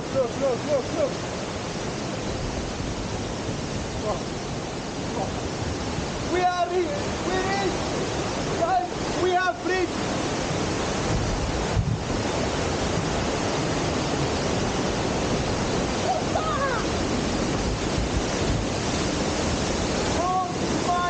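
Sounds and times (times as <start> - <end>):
waterfall rushing: 0.0 - 21.0
wind buffeting microphone: 9.9 - 21.0.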